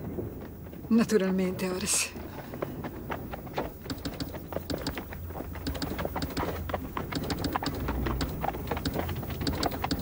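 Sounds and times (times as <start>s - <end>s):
low steady hum: 0.0s - 10.0s
telegraph sounder clicking: 3.9s - 5.0s, 5.6s - 6.5s, 7.1s - 10.0s.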